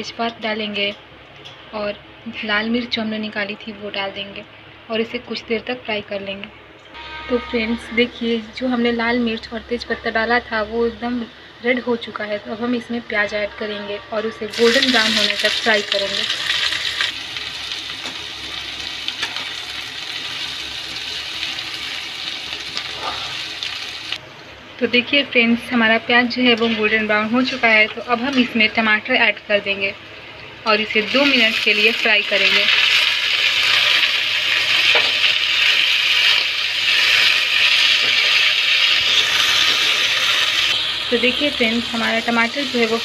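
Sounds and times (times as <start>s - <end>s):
onions sizzling in hot oil: 14.5s - 24.2s, 30.9s - 43.0s.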